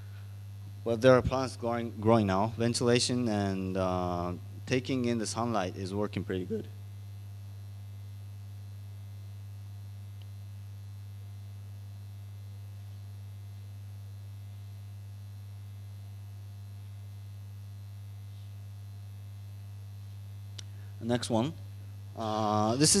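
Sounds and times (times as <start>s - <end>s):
low electrical mains hum: 0.0s - 23.0s.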